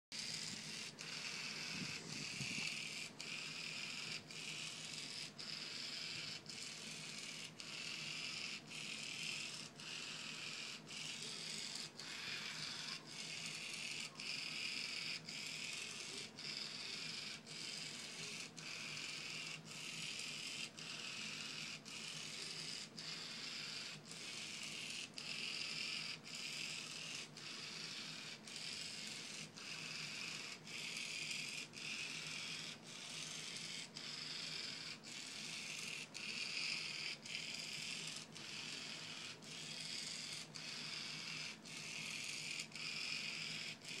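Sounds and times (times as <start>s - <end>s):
small motors whirring: 0.2s - 44.0s.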